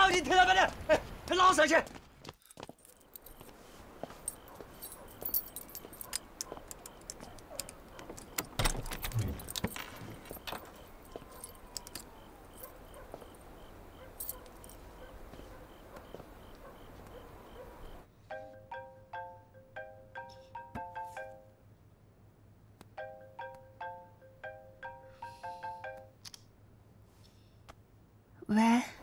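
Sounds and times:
running footsteps: 0.6s - 8.6s
metallic jingling and clinking: 2.4s - 18.0s.

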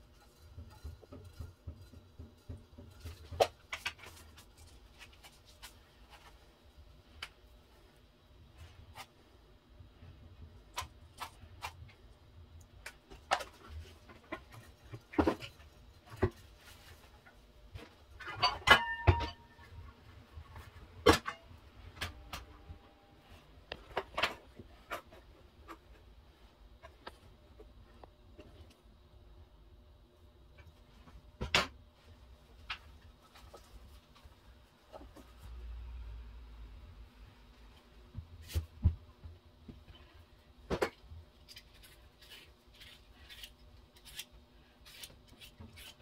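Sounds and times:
kitchen pots and utensils knocking: 18.2s - 19.6s.

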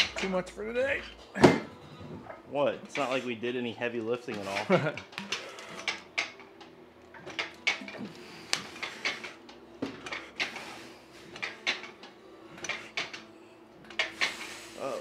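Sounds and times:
gym equipment clinking and knocking: 0.0s - 6.4s, 7.1s - 10.6s, 11.3s - 11.9s, 12.5s - 14.4s
faint steady hum: 5.4s - 14.2s.

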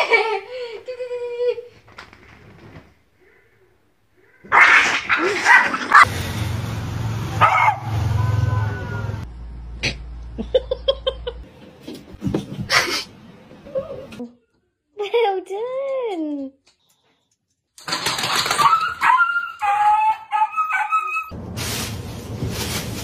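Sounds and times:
dog barking: 4.5s - 6.1s, 7.4s - 8.0s.

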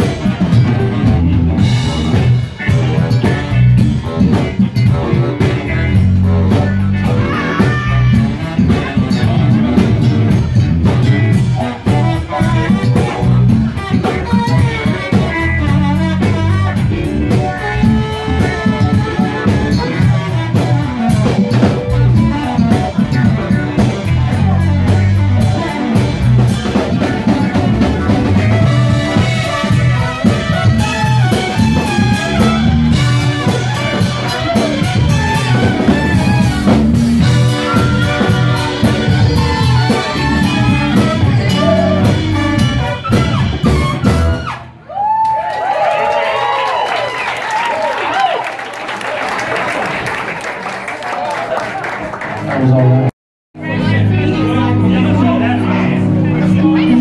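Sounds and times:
electric guitar: 0.0s - 44.7s
horns: 0.0s - 44.8s
drum kit: 0.0s - 46.8s
bass: 0.0s - 50.0s, 52.1s - 57.0s.

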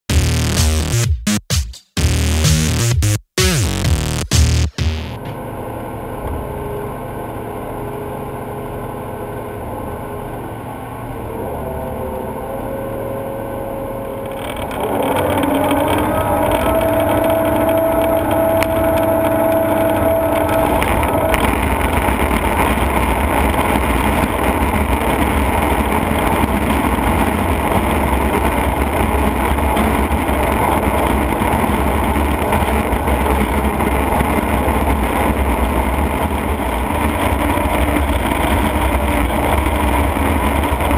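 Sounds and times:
machine whine: 4.9s - 40.9s
shredder rotor hum: 4.9s - 40.9s
rubber tires being shredded: 13.8s - 40.9s.

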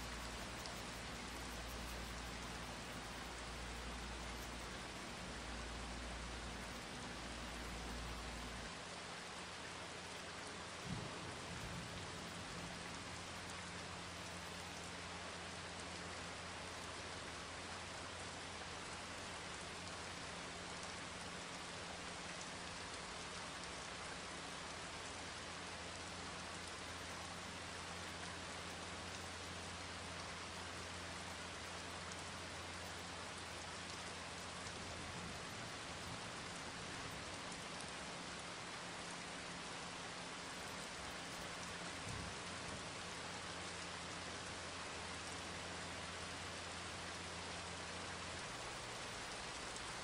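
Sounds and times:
rain hissing: 0.0s - 50.0s.

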